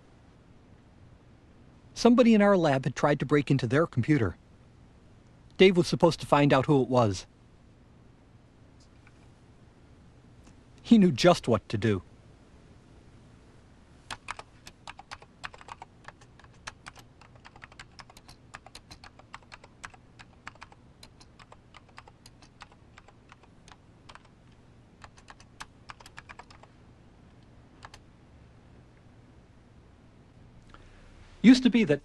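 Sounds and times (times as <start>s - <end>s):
typing on keyboard: 14.1s - 24.3s, 25.0s - 26.7s, 27.8s - 28.0s.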